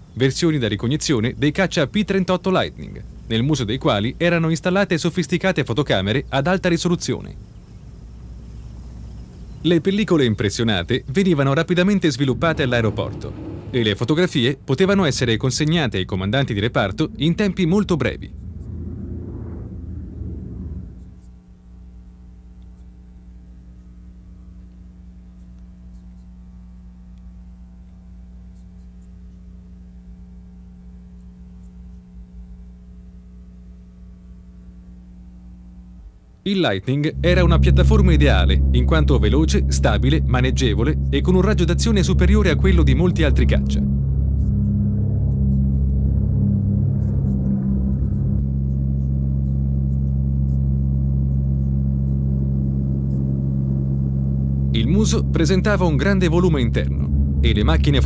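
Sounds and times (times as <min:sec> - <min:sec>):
low hum with overtones: 0:00.0 - 0:58.0
loud low drone: 0:05.5 - 0:22.1, 0:36.9 - 0:58.0.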